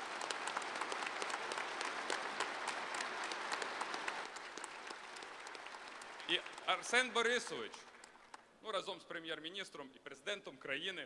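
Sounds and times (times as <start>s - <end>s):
crowd applauding: 0.0s - 8.4s.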